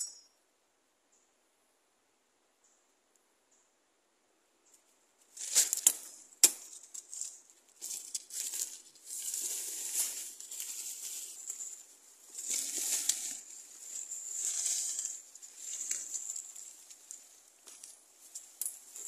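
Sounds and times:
brushing past undergrowth: 5.2 - 19.0
footsteps crunching dry leaves: 5.3 - 19.0.

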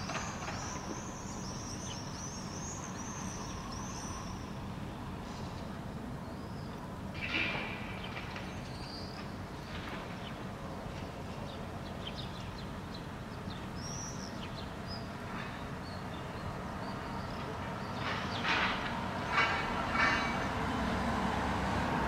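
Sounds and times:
small birds chirping: 0.0 - 4.5, 11.0 - 18.5
distant city traffic rumble: 0.0 - 22.0.

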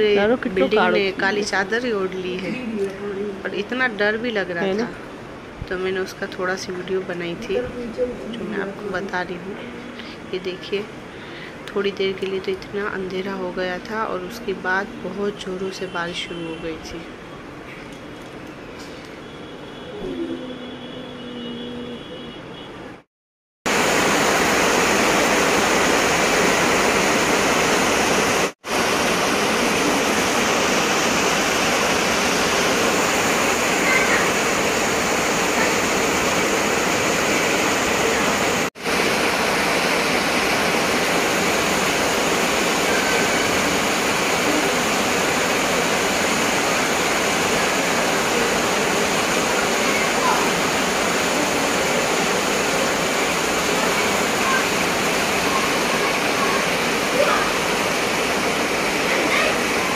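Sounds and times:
heavy rain pouring: 0.0 - 16.2, 23.7 - 59.9.

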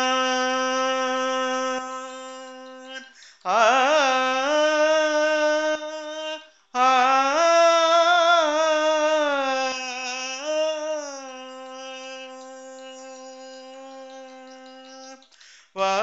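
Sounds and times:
person singing long notes: 0.0 - 16.0
person breathing: 3.1 - 3.5, 15.3 - 15.8.

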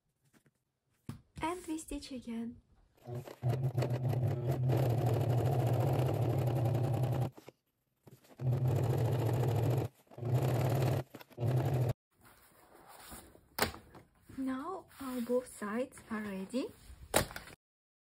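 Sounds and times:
sewing machine stitching: 3.0 - 7.4, 8.3 - 12.0.

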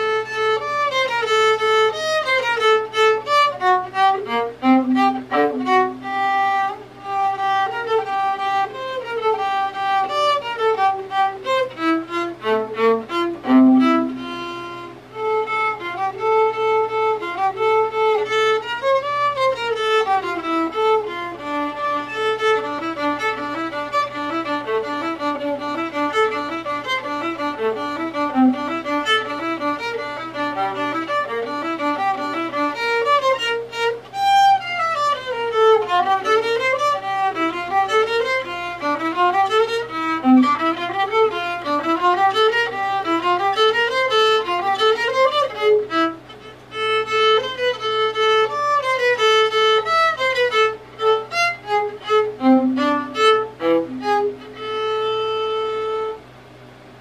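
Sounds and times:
solo violin: 0.0 - 57.0.

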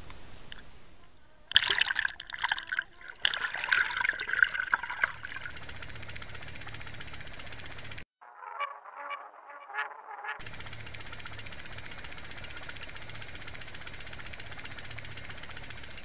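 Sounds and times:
water rushing past camera: 1.5 - 5.8
water splashing and bubbling: 1.5 - 6.4.

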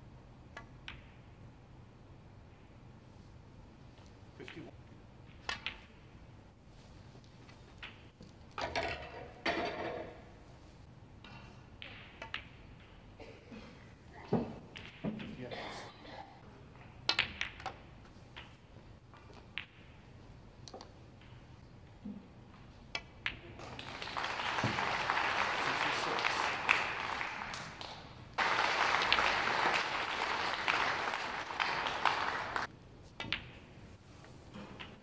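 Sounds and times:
snooker balls clicking: 0.4 - 1.4, 4.0 - 6.2, 7.2 - 9.8, 11.8 - 13.1, 14.5 - 15.3, 16.8 - 25.1, 28.4 - 33.8
audience applauding: 23.6 - 32.7.

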